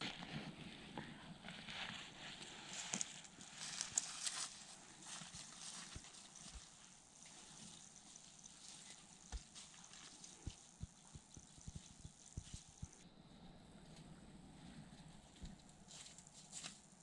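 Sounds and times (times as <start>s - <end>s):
footsteps in dry grass: 1.5s - 13.0s.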